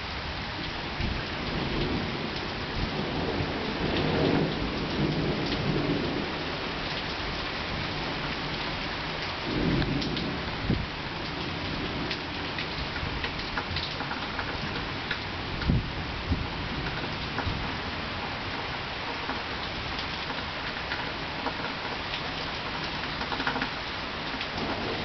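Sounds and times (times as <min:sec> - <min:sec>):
heavy rain pattering: 0:00.0 - 0:25.0
rolling thunder: 0:01.0 - 0:06.7, 0:09.4 - 0:13.3, 0:15.4 - 0:17.8, 0:24.5 - 0:25.0
single raindrop ticks: 0:09.2 - 0:10.3, 0:12.1 - 0:15.8, 0:18.5 - 0:24.8.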